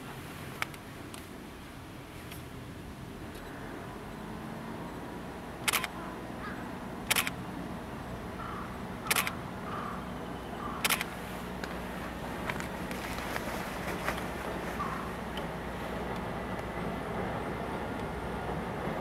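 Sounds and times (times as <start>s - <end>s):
low steady hum: 0.0s - 19.0s
camera shutter double click: 5.7s - 6.0s, 7.1s - 7.4s, 9.1s - 9.4s, 10.8s - 11.1s.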